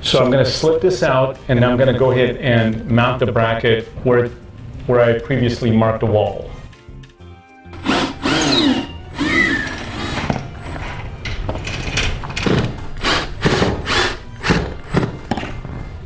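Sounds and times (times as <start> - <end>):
cordless drill driving screws: 7.8 - 10.8, 13.0 - 15.1.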